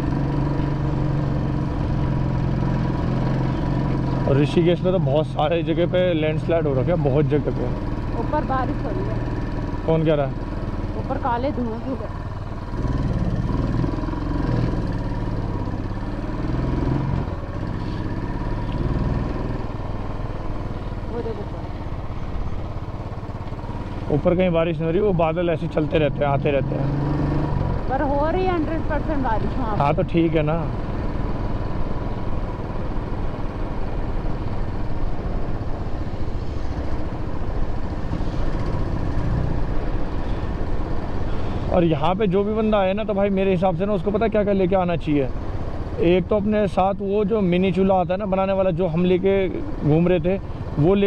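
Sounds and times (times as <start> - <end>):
motorcycle engine running: 0.0 - 51.0
road and wind noise: 0.0 - 51.0.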